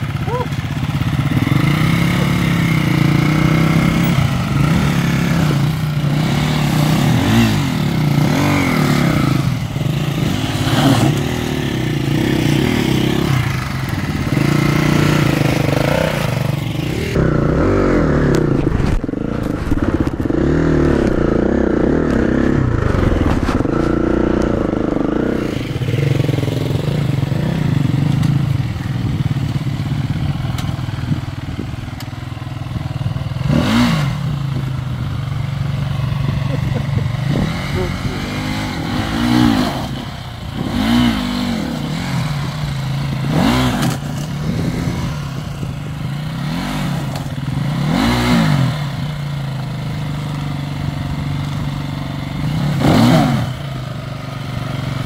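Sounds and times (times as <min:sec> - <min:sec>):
dirt bike engines revving: 0:00.0 - 0:55.0.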